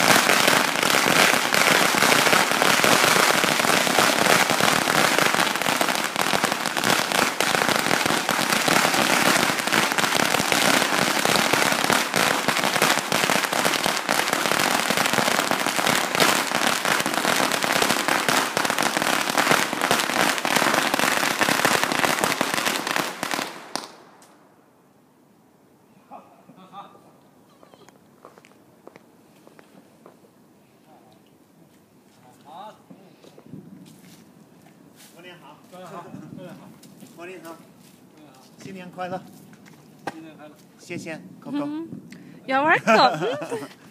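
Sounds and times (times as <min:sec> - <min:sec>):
firecrackers crackling: 0:00.0 - 0:24.5, 0:35.1 - 0:43.9.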